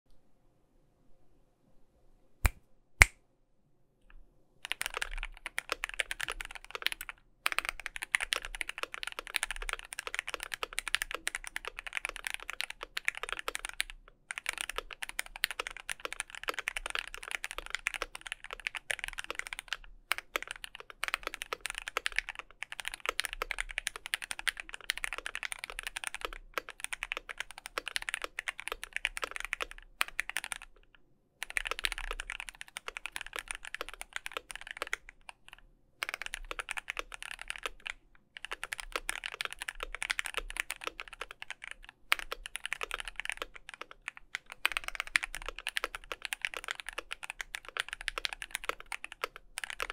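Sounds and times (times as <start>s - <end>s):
mechanical keyboard typing: 4.6s - 49.9s.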